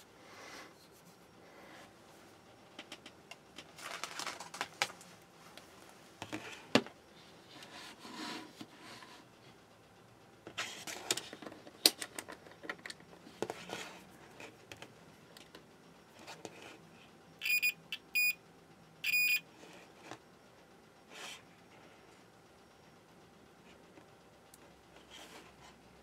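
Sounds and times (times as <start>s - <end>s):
continuity buzzer beeping: 17.4s - 18.4s, 19.0s - 19.4s.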